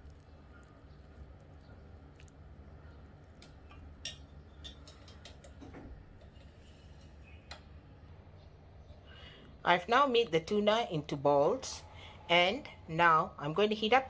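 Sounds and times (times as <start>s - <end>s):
faint low hum: 0.0s - 14.0s
clicks and taps on bowl and plate: 3.4s - 6.5s.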